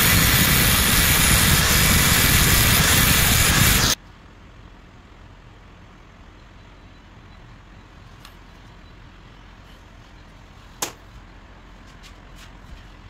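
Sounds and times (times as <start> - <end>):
low background hum: 3.5 - 13.0.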